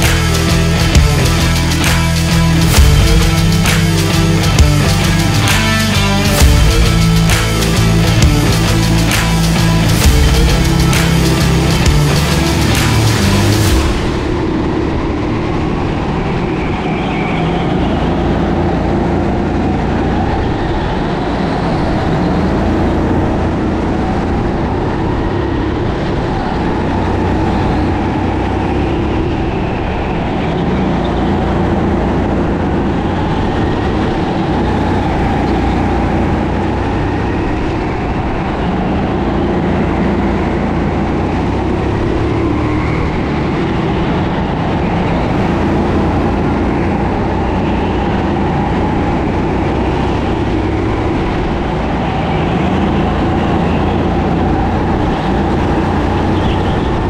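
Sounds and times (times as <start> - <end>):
kart engine running hard: 0.0 - 57.0.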